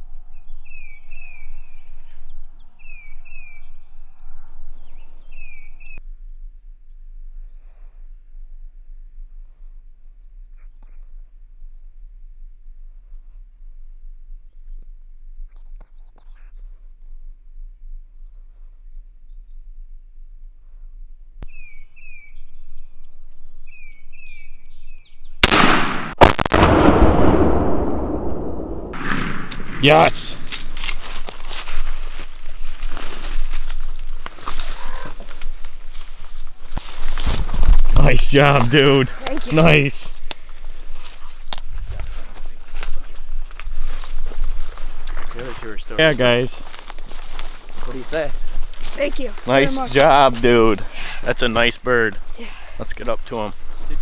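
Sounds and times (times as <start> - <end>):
small birds chirping: 0.0 - 25.4, 29.9 - 54.0
loud shotgun shot: 25.4 - 31.0.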